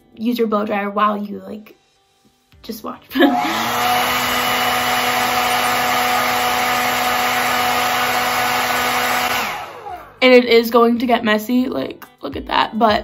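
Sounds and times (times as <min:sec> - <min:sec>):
hair dryer running: 0:03.2 - 0:10.2.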